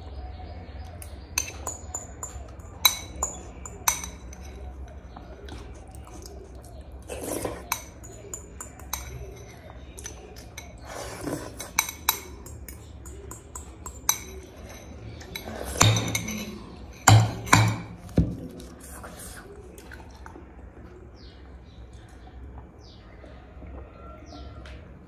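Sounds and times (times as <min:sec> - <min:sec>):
person slurping soup: 0:07.0 - 0:07.9, 0:10.7 - 0:11.8, 0:14.6 - 0:15.8
spoon scraping glass bowl: 0:07.1 - 0:17.9
glass bowl knocking on plate: 0:15.8 - 0:16.4, 0:17.1 - 0:18.4.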